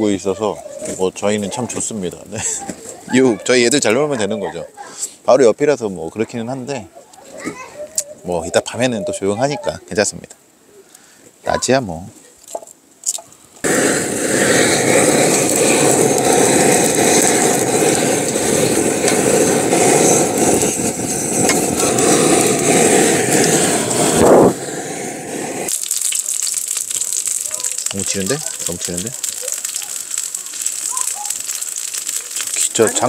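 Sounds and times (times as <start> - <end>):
butane torch flame blowing: 13.6 - 33.0
oil sizzling on griddle: 13.6 - 33.0.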